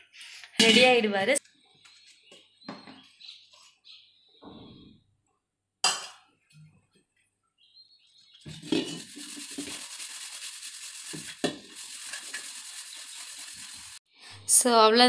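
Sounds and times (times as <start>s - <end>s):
scrub pad rubbing pot: 8.5s - 14.0s.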